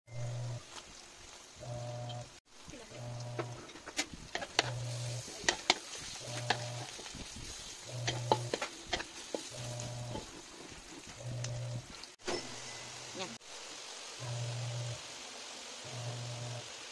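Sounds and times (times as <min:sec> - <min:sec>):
low humming note: 0:00.1 - 0:00.6, 0:01.6 - 0:02.4
onions sizzling in a wok: 0:00.1 - 0:16.9
spatula scraping metal wok: 0:03.1 - 0:12.0.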